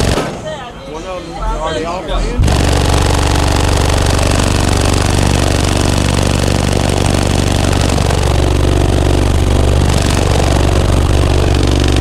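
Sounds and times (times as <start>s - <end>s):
deep subwoofer bass drone: 2.2s - 12.0s.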